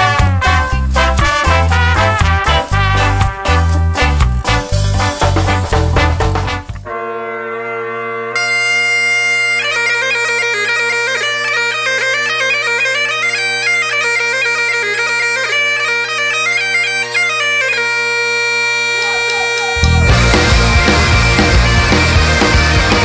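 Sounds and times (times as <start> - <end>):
bagpipe chanter melody: 6.8 - 23.0
bagpipe drones: 6.8 - 23.0.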